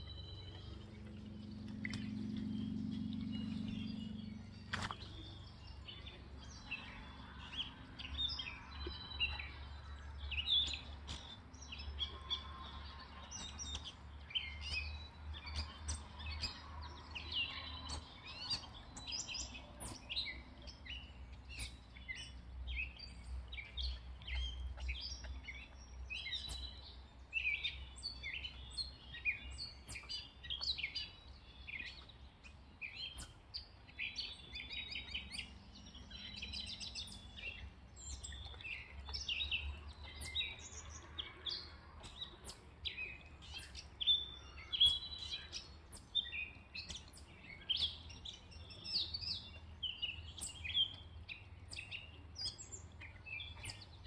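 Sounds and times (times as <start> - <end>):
faint low rumble: 0.0 - 11.6
songbirds chirping and singing: 0.0 - 54.0.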